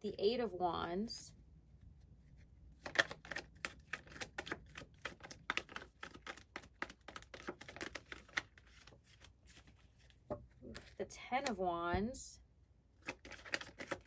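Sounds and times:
cards being shuffled: 0:02.7 - 0:11.6, 0:13.0 - 0:14.0.

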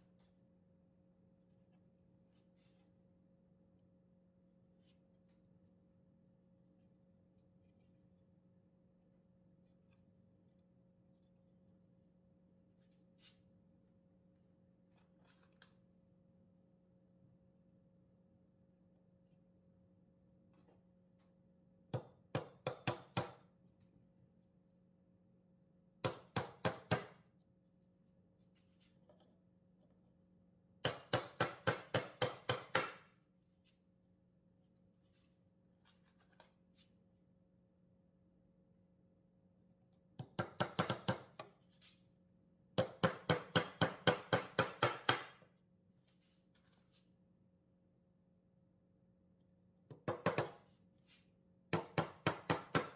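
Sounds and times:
hammer tapping a nail: 0:21.9 - 0:23.4, 0:26.0 - 0:27.2, 0:30.8 - 0:33.0, 0:40.2 - 0:41.4, 0:42.8 - 0:45.4, 0:49.9 - 0:50.6, 0:51.7 - 0:52.9.

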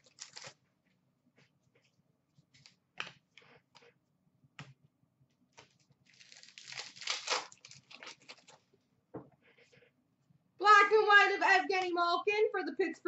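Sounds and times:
cards rustling and crinkling: 0:05.5 - 0:08.6.

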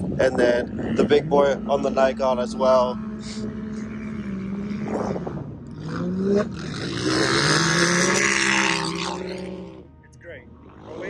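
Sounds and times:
race vehicle engines revving: 0:00.0 - 0:11.0.

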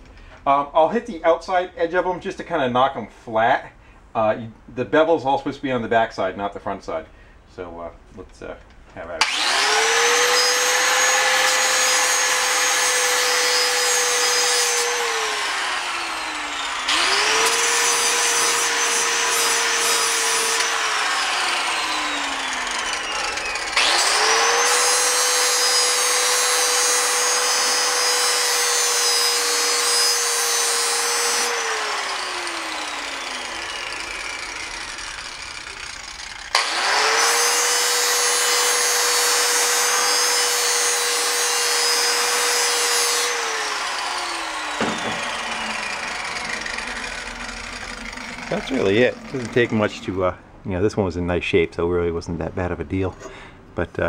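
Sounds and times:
angle grinder grinding metal: 0:09.2 - 0:50.4.

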